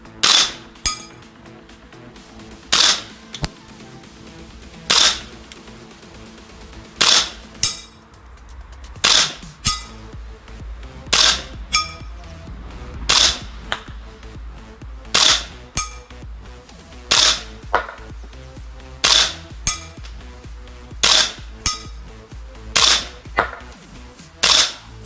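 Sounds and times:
airsoft rifle firing: 0.2s - 0.6s, 2.7s - 3.1s, 4.9s - 5.3s, 7.0s - 7.4s, 9.0s - 9.4s, 11.1s - 11.4s, 13.1s - 13.4s, 15.1s - 15.5s, 17.1s - 18.0s, 19.0s - 19.8s, 21.0s - 21.4s, 22.8s - 23.1s, 24.4s - 24.8s.

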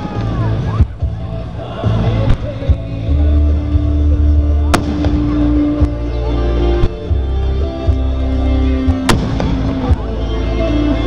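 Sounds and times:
music with held notes and bass: 0.0s - 11.0s
fireworks bangs: 4.7s - 6.0s, 9.0s - 10.1s.

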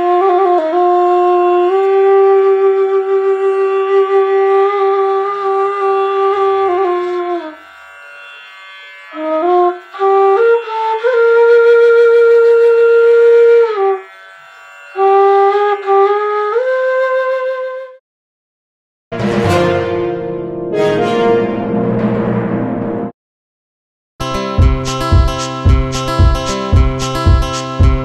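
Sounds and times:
slow solo flute melody: 0.0s - 7.5s, 9.9s - 14.0s, 15.6s - 18.0s.

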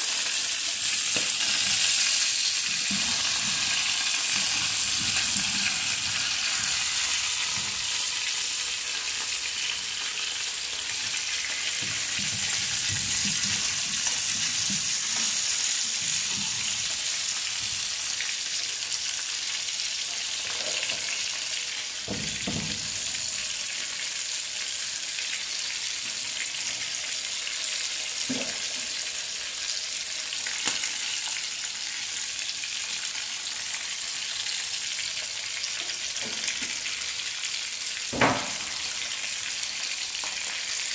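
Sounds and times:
fish sizzling in frying pan: 0.0s - 40.9s.

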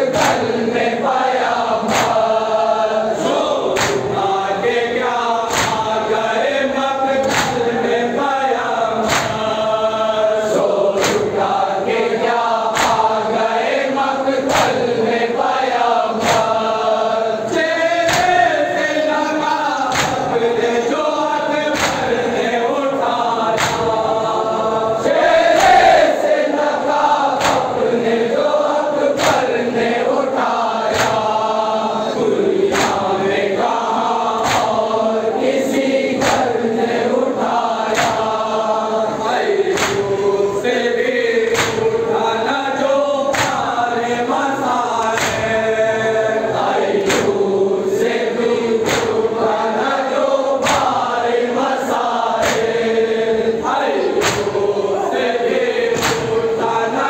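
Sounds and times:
crowd of men chanting: 0.0s - 57.0s
palms slapping chests: 0.1s - 0.6s, 1.8s - 2.6s, 3.2s - 4.8s, 5.4s - 6.1s, 7.2s - 7.8s, 8.6s - 9.8s, 10.8s - 11.6s, 12.6s - 13.2s, 17.9s - 18.6s, 19.9s - 20.4s, 21.7s - 22.6s, 23.2s - 24.4s, 27.3s - 28.4s, 29.2s - 29.8s, 30.8s - 31.8s, 32.6s - 36.6s, 37.6s - 38.5s, 39.3s - 40.3s, 41.3s - 42.1s, 43.2s - 43.8s, 45.0s - 45.8s, 47.0s - 47.4s, 48.8s - 49.3s, 50.6s - 51.1s, 52.0s - 53.0s, 54.0s - 54.8s, 55.5s - 56.5s.

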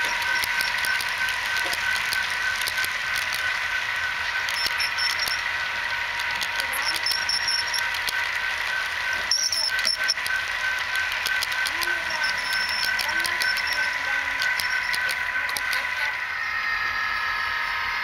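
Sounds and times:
wheels clicking: 0.0s - 3.6s, 9.2s - 15.9s
pulsing tone: 0.0s - 5.6s, 6.3s - 8.0s, 9.1s - 17.3s
high whine: 0.0s - 18.0s
model train cars rolling on track: 0.0s - 18.0s.

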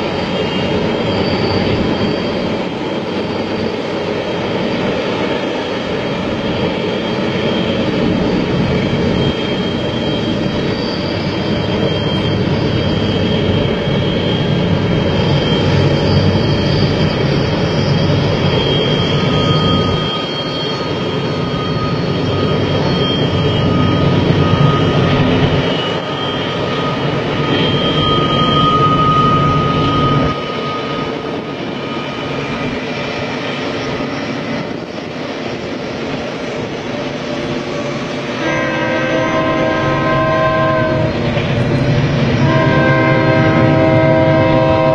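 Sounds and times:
freight train rumbling: 0.0s - 44.9s
high wheel squealing: 0.0s - 44.9s.

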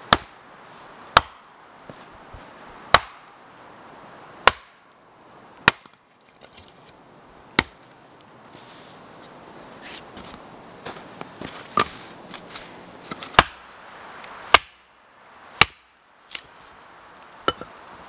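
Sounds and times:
axe chopping firewood: 0.0s - 0.4s, 1.1s - 1.5s, 2.9s - 3.3s, 4.4s - 4.8s, 5.6s - 6.6s, 7.5s - 7.8s, 13.0s - 13.6s, 14.5s - 14.8s, 15.6s - 16.5s, 17.5s - 17.7s.

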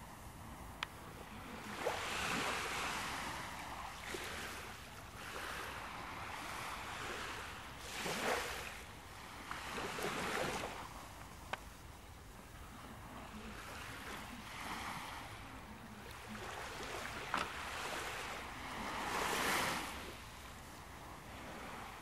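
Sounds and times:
ocean surf washing in: 12.6s - 22.0s.

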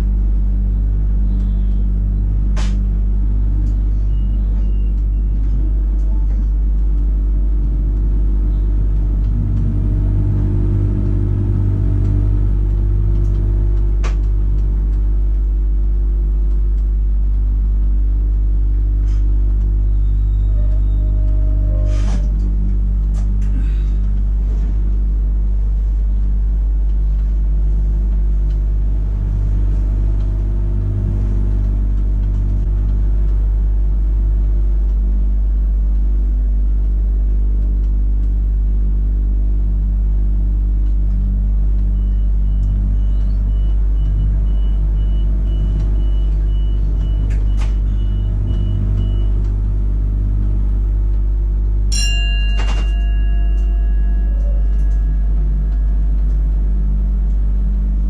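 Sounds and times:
steady multi-tone sound: 0.0s - 21.0s, 24.0s - 58.0s
train electrical hum: 0.0s - 58.0s
click: 1.4s - 1.6s, 12.0s - 15.5s, 40.8s - 44.2s.

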